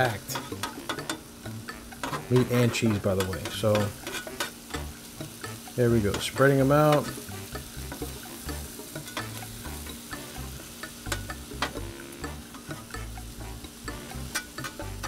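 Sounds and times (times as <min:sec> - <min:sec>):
meat and onions sizzling on griddle: 0:00.0 - 0:15.0
metal spatulas scraping steel plate: 0:01.8 - 0:04.8.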